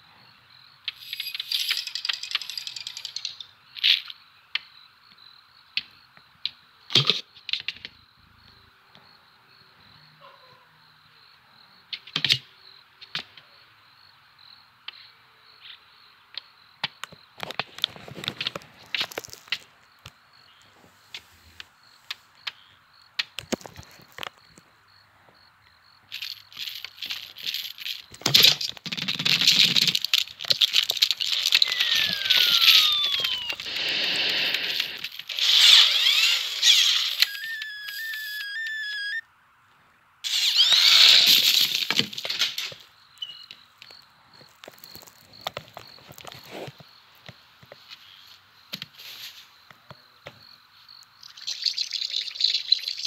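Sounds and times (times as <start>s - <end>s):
toys clattering and rattling: 0.9s - 4.1s, 17.4s - 19.7s, 26.1s - 38.8s, 40.3s - 42.9s
clicks: 28.1s - 38.8s
wavering electronic beeps: 31.3s - 34.3s
falling whistle-like glide: 31.5s - 33.8s, 35.7s - 39.2s.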